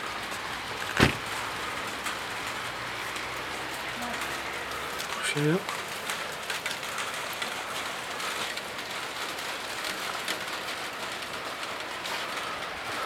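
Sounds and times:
heavy rain pouring: 0.0s - 13.0s.

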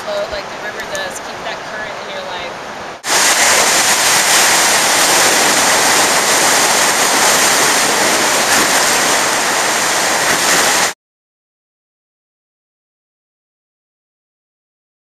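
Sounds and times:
whitewater rapids rushing: 0.1s - 11.0s.

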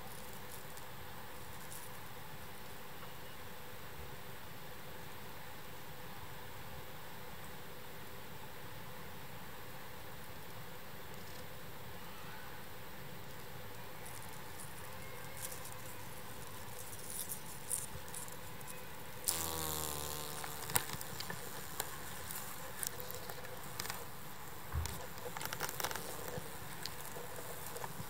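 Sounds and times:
beetle wings buzzing: 0.0s - 2.2s, 13.8s - 28.0s
dry leaves crackling and rustling: 13.8s - 28.0s.

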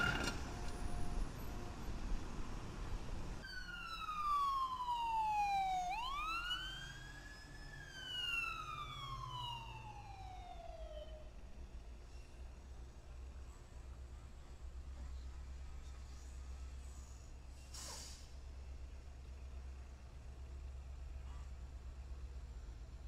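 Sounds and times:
siren wailing: 3.4s - 11.3s.

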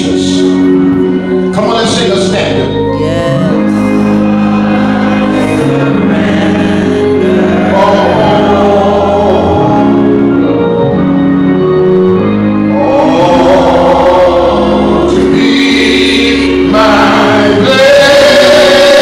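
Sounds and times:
congregation singing a hymn: 0.0s - 19.0s
organ chords: 0.0s - 19.0s.

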